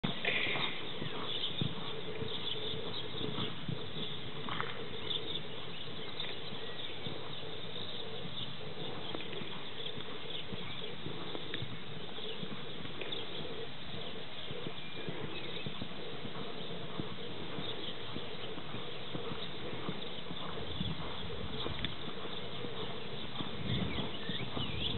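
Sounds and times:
background noise: 0.0 - 24.9
horse hoofbeats on sand: 0.0 - 24.9.

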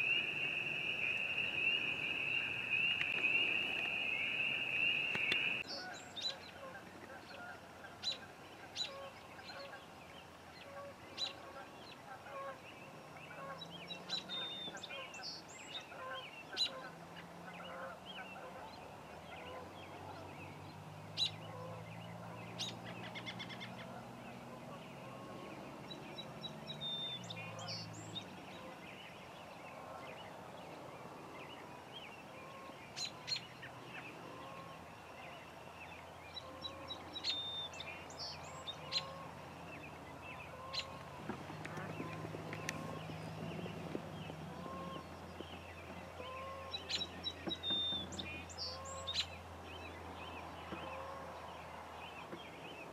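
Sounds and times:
birds chirping and whistling: 0.0 - 5.8, 36.4 - 39.2
faint honking calls: 36.4 - 45.2, 45.8 - 47.0.

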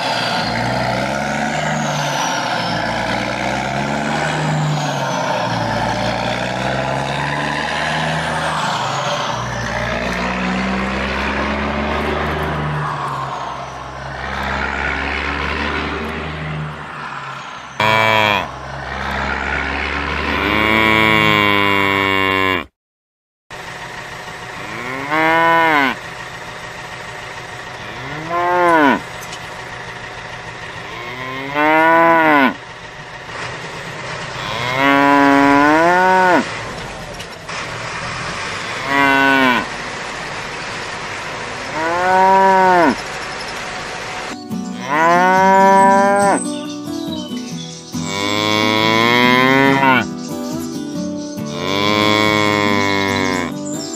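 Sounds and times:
cows mooing: 0.0 - 16.8, 17.8 - 22.7, 24.6 - 26.0, 27.8 - 29.4, 30.7 - 32.6, 34.2 - 36.9, 38.5 - 39.8, 41.6 - 43.1, 44.5 - 46.7, 48.0 - 50.7, 51.4 - 53.8.

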